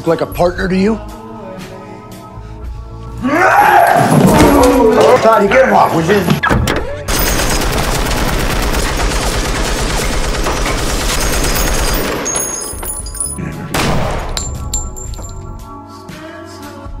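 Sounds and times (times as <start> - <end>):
music: 0.0 - 7.6, 9.5 - 17.0
machine gun automatic fire: 7.1 - 12.4.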